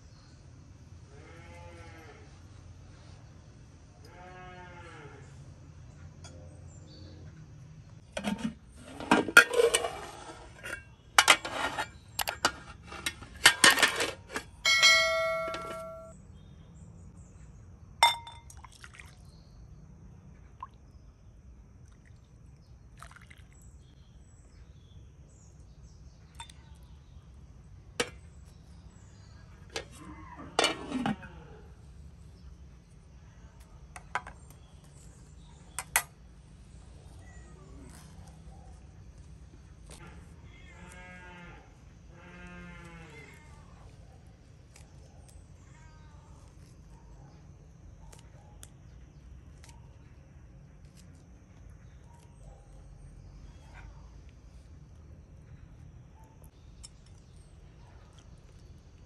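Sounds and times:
dishes and utensils clinking: 8.2s - 16.1s
struck dish ringing: 13.5s - 16.1s, 18.0s - 18.4s.

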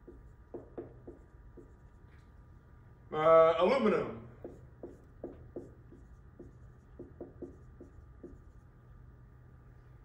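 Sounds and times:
marker squeaking on a whiteboard: 4.4s - 8.8s.

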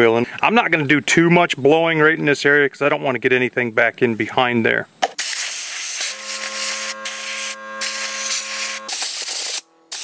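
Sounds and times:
compressed air hissing: 5.2s - 10.0s
steady humming tone: 5.8s - 10.0s.

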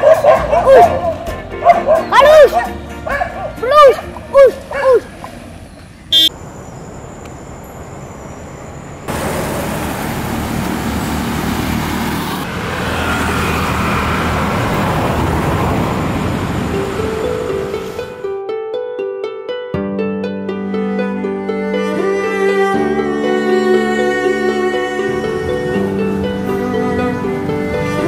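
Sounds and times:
street noise: 0.0s - 18.3s, 22.4s - 28.0s
road traffic passing: 0.0s - 18.4s, 20.8s - 28.0s
high horn toot: 6.1s - 6.4s
motorcycle passing: 9.1s - 18.2s, 24.8s - 28.0s
soft plucked music: 16.7s - 28.0s.

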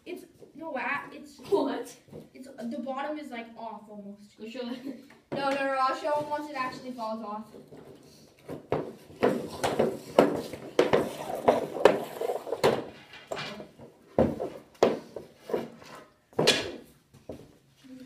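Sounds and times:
hockey pucks and stick clacking: 7.5s - 16.8s.

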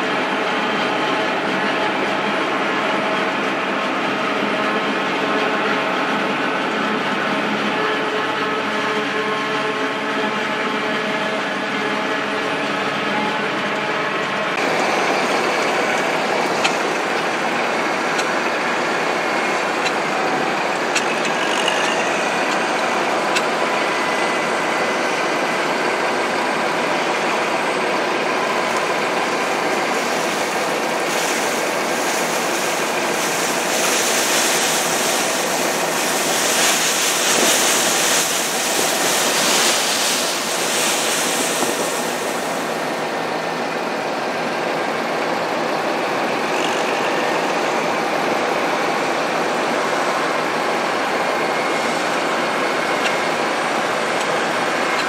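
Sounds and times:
tractor engine running: 0.0s - 55.0s
silage sliding out hiss: 29.6s - 42.9s.

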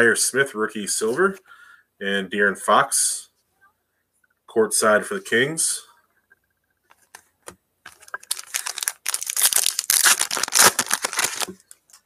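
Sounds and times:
foil wrapper tearing and crinkling: 7.9s - 11.7s.

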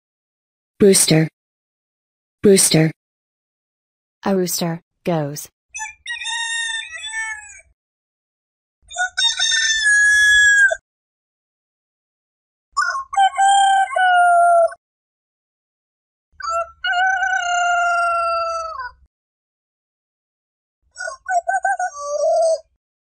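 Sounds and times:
roosters crowing: 5.9s - 7.6s, 9.0s - 10.8s, 12.9s - 14.8s, 16.4s - 19.0s.

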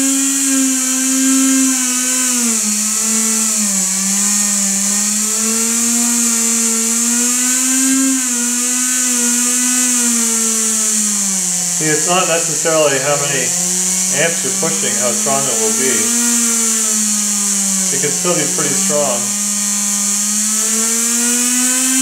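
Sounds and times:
small motor whining at high speed: 0.0s - 22.0s
steady hiss: 0.0s - 22.0s.

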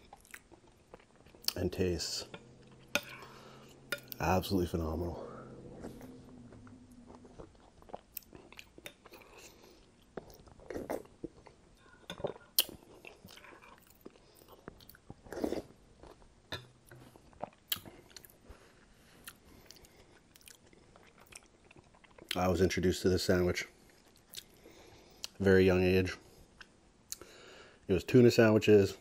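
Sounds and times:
wet chewing and swallowing: 0.0s - 4.2s, 5.2s - 22.4s, 23.8s - 25.4s.

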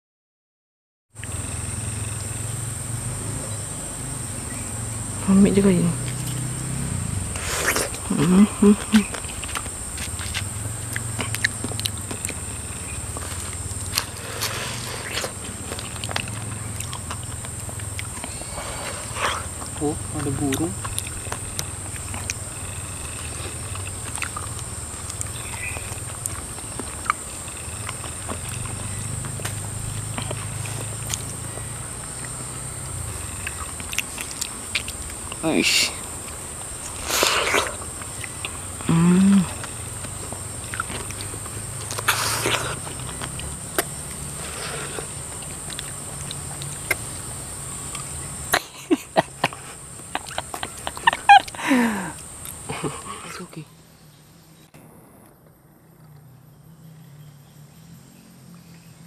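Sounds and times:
person humming: 7.9s - 9.2s, 38.8s - 39.6s
wet chewing and smacking: 8.8s - 35.4s, 36.2s - 51.6s
bird caller clicks: 20.2s - 32.4s, 33.3s - 35.4s.

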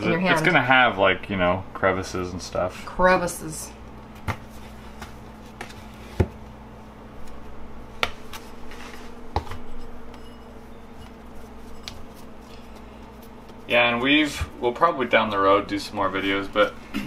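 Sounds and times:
steady low hum: 0.0s - 17.0s
hands shaping dough: 7.2s - 16.8s.

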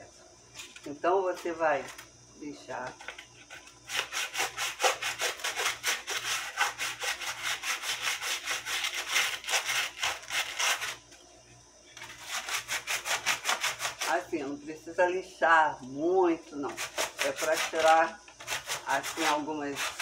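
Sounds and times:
sandpaper rasping on wood: 3.9s - 11.0s, 12.0s - 14.2s, 16.6s - 20.0s.

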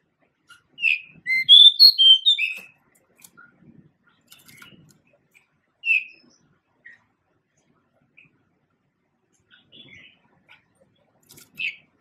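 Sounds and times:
bird whistled song: 0.8s - 2.7s, 5.8s - 6.4s.

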